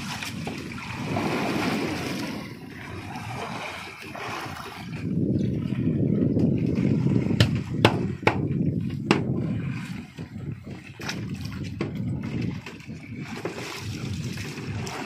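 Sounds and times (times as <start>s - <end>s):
wind buffeting microphone: 0.0s - 15.0s
sharp knocks or splashes: 6.4s - 10.3s, 11.0s - 15.0s.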